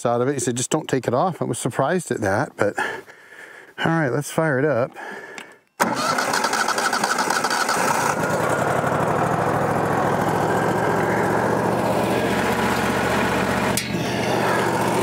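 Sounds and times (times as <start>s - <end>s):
sawmill engine idling: 5.8s - 15.0s.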